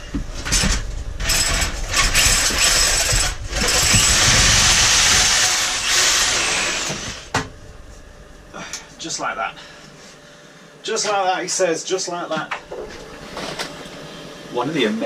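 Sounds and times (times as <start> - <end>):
power drill boring through wall: 1.2 - 7.4.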